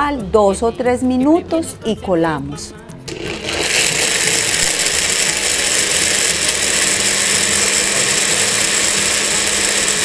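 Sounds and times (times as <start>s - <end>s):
blender running: 3.1s - 10.0s.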